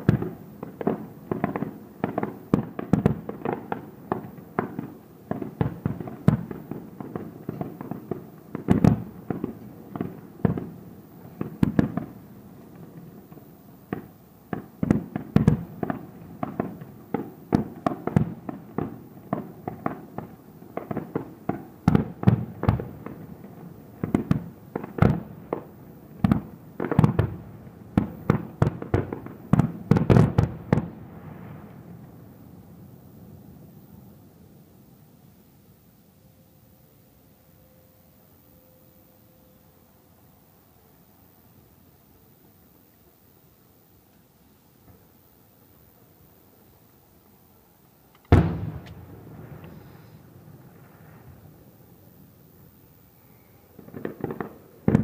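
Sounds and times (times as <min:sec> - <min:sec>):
fireworks shells bursting: 0:48.1 - 0:51.6, 0:52.9 - 0:55.0.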